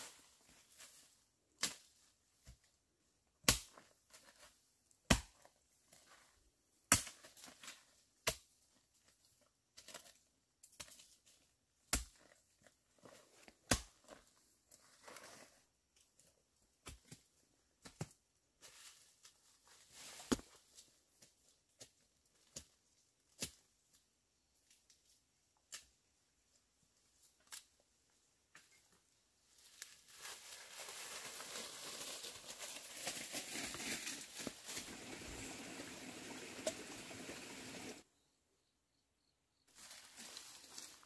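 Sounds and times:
dry leaves crackling and rustling: 0:29.6 - 0:38.0, 0:39.7 - 0:41.0.

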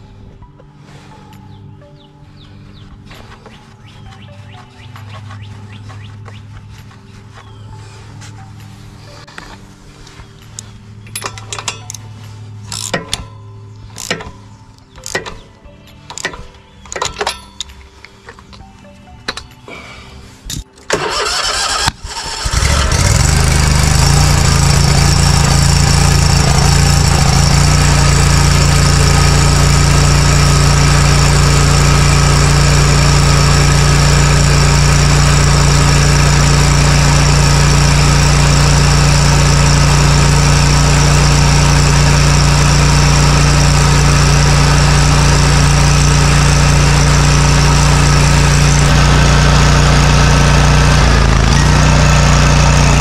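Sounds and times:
mower engine running: 0:02.6 - 0:08.1, 0:20.9 - 0:53.0
engine starter cranking: 0:20.8 - 0:53.0.

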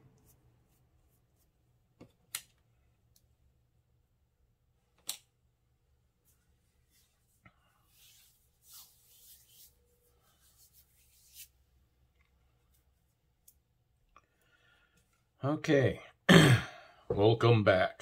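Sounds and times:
soft rustling: 0:06.2 - 0:13.7.

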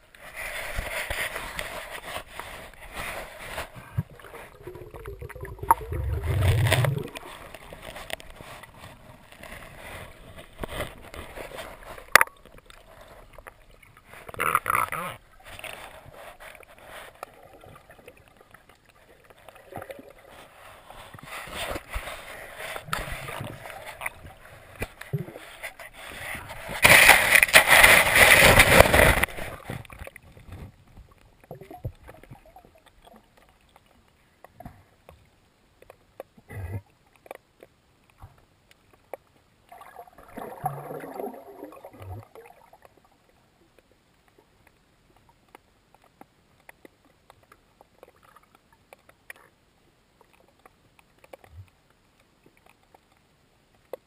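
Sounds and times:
water sloshing and rushing: 0:00.0 - 0:36.0, 0:39.5 - 0:43.6
faint underwater clicks: 0:00.0 - 0:54.0.

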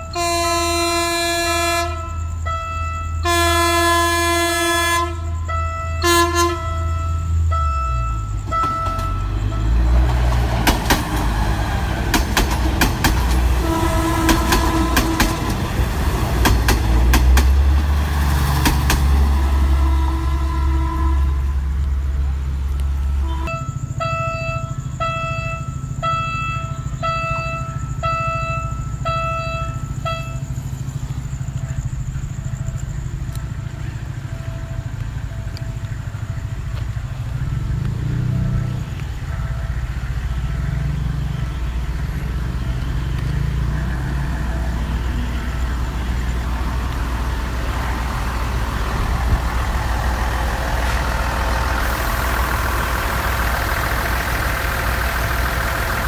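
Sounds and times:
diesel train engine rumbling: 0:00.0 - 0:56.0
wheels rushing on rails: 0:00.0 - 0:56.0
short beeps: 0:05.2 - 0:09.9, 0:23.3 - 0:30.6.

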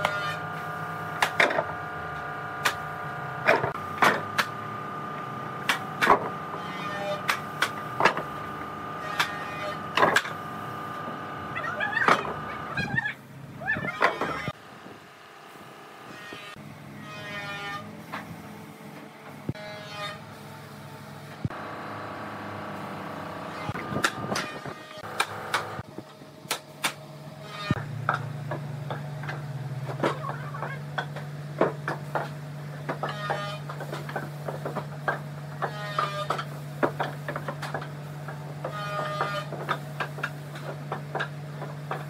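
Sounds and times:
machine humming: 0:00.0 - 0:17.8, 0:18.5 - 0:25.8.

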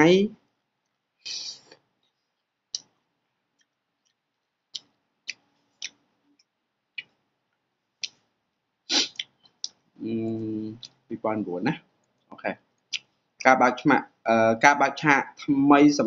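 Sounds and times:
person chewing noodles: 0:02.7 - 0:07.2.

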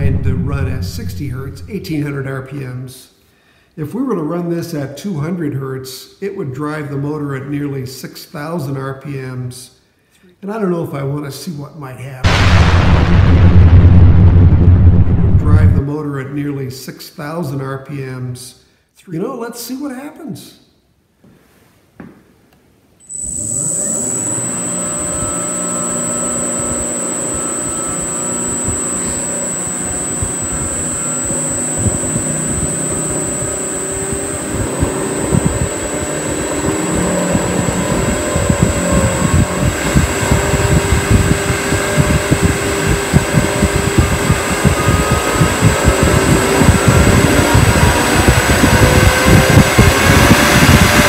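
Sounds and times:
high motor whine: 0:00.0 - 0:02.3, 0:12.3 - 0:15.8, 0:23.1 - 0:51.0
lathe motor speeding up: 0:23.1 - 0:51.0.

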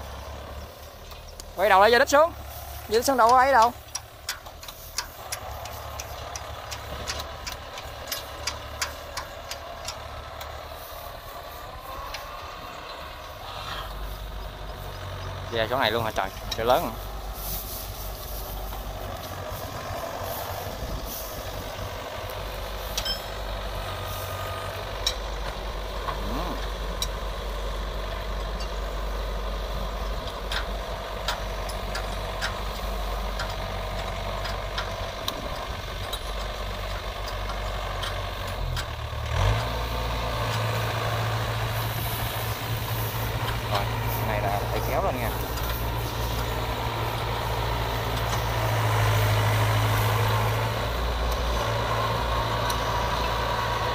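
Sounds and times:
diesel engine running: 0:00.0 - 0:53.9
sharp metal clanks: 0:22.9 - 0:23.4.

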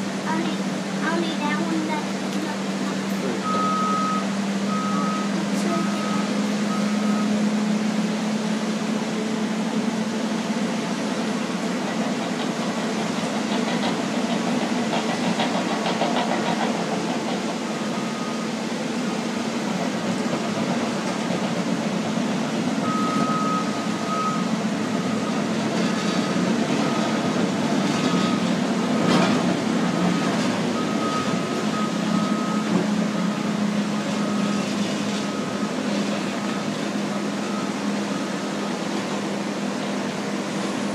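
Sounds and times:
heavy diesel machines running: 0:00.0 - 0:40.9
backup alarm beeping: 0:03.4 - 0:07.4, 0:22.8 - 0:25.5.

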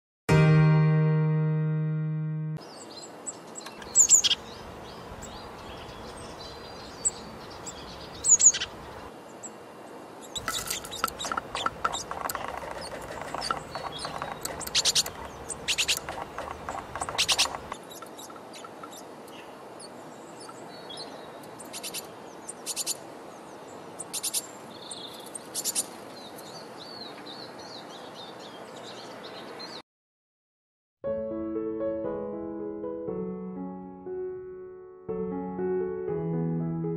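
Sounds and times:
songbirds chirping: 0:02.6 - 0:29.8.

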